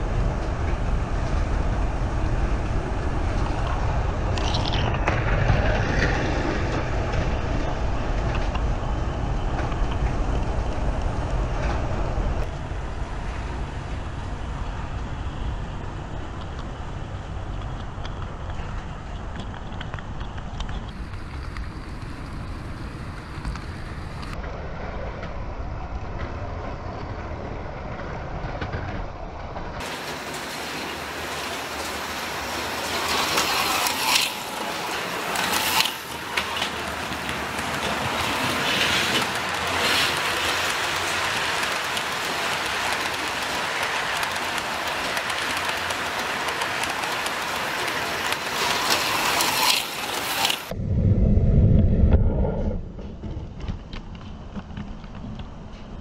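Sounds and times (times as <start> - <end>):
model train rumble: 28.0 - 50.8
model train track hiss: 29.8 - 50.7
slot cars racing past: 29.8 - 50.8.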